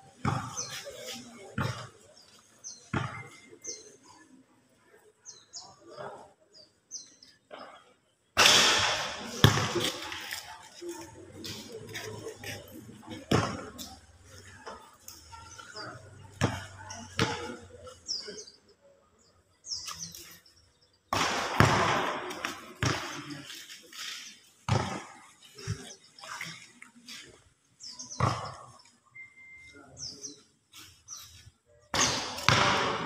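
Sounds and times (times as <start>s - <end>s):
small birds chirping: 0.0s - 8.3s, 9.8s - 21.2s, 22.3s - 32.5s
voices calling out: 5.0s - 33.0s
basketball bangs and thuds: 8.4s - 10.0s, 21.2s - 23.2s, 24.7s - 25.2s, 32.0s - 33.0s.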